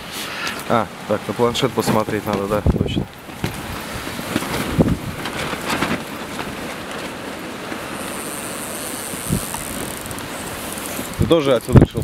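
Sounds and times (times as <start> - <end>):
strong wind on microphone: 2.6 - 6.0, 9.1 - 12.0.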